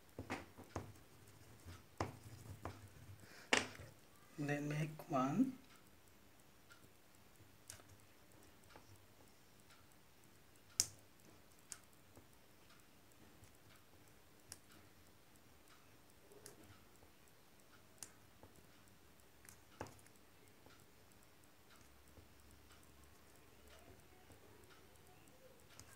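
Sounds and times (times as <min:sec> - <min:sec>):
oil pastel tapping on paper: 0:00.0 - 0:03.8.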